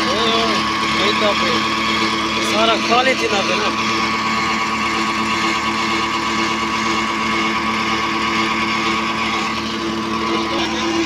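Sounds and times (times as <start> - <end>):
tractor engine running: 0.0 - 11.0.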